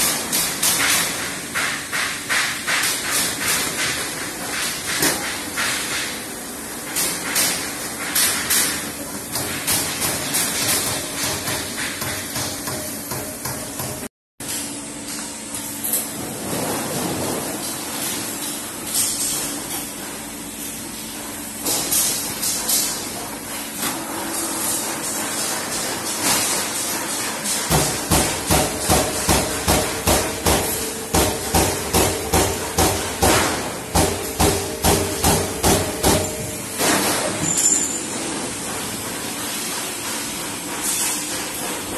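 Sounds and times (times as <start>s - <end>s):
punch press striking sheet metal: 0.0s - 14.1s, 23.8s - 38.8s
machine hum and hiss: 0.0s - 41.9s.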